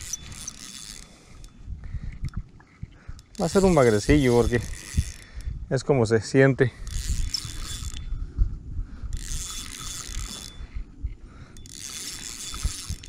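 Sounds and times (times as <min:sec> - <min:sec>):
fishing reel gears whirring: 0:00.0 - 0:02.3, 0:03.1 - 0:05.6, 0:06.7 - 0:08.4, 0:09.0 - 0:13.0.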